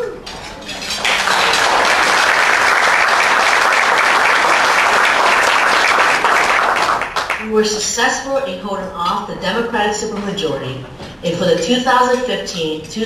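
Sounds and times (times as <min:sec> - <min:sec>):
audience applauding: 0:00.9 - 0:07.5.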